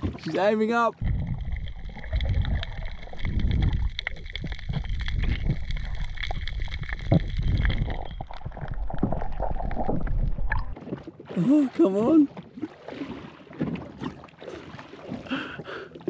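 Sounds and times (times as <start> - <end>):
underwater clicks and crackles: 0.0 - 11.2
underwater churning rumble: 0.0 - 16.0.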